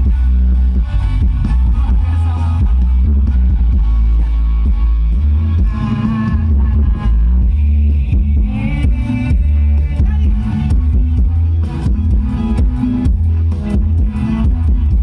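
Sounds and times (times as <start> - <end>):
loud music with heavy bass: 0.0 - 15.0.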